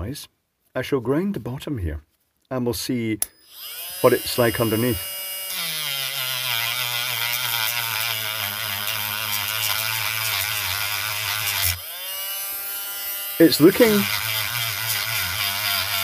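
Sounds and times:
rotary tool grinding metal: 3.3s - 16.0s.

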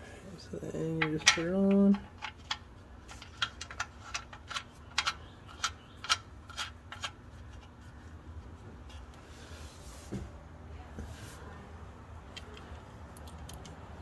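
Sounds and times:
light metal clicks: 12.3s - 14.0s.

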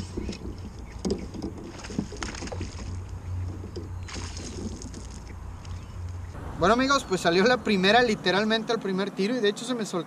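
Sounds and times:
fish splashing in water: 0.9s - 5.5s.

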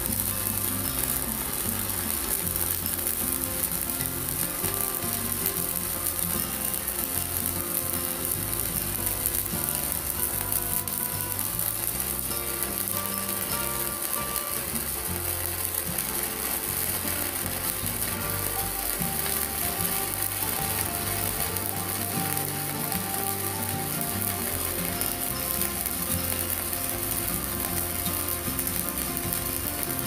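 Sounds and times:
background music: 0.0s - 30.0s
welding arc crackling: 0.0s - 30.0s.

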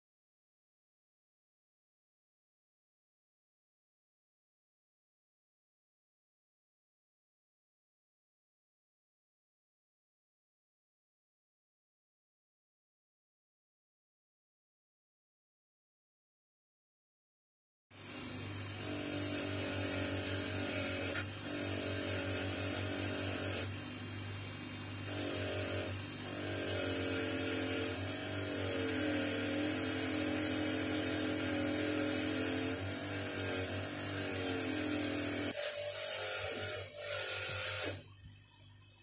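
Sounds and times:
bench grinder motor hum: 18.0s - 38.3s.

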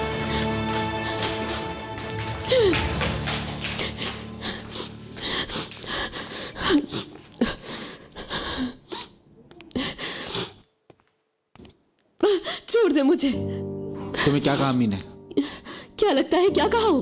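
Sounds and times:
woman sobbing and gasping: 3.8s - 10.6s.

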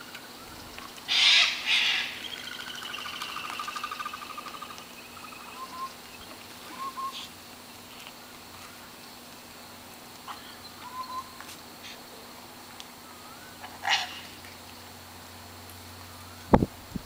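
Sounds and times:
rapid trilling bird call: 0.0s - 7.4s, 10.3s - 12.0s, 13.0s - 14.4s
cockatoo screeches: 1.1s - 2.2s, 13.6s - 14.4s.

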